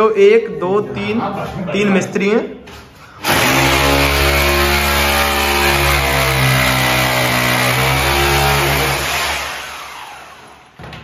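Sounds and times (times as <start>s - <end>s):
electric drill boring into cement: 3.2s - 10.7s.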